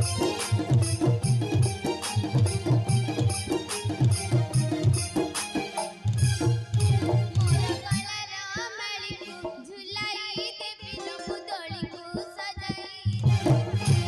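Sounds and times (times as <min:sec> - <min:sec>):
hand drum beats: 0:00.0 - 0:11.0
high voice singing: 0:07.4 - 0:13.8.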